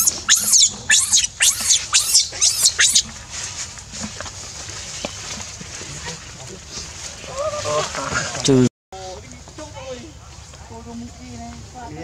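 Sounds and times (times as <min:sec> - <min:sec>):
baby monkey screaming: 0:00.0 - 0:03.1.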